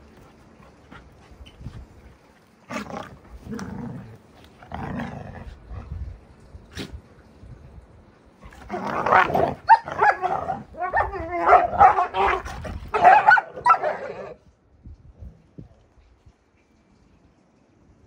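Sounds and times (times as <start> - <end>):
puppies growling: 2.6 - 6.2, 8.5 - 14.4.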